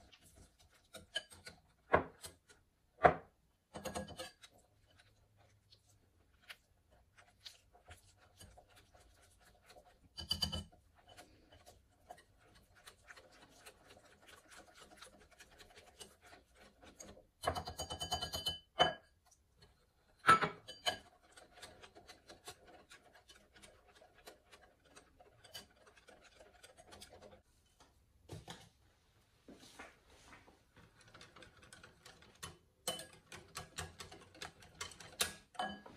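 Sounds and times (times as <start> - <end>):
whisk beating in glass bowl: 0.0 - 27.5, 30.8 - 35.9.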